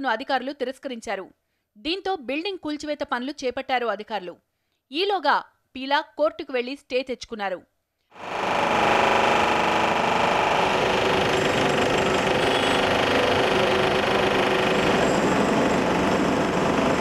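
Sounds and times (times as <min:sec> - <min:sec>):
demolition hammer chiselling concrete: 0:08.2 - 0:17.0.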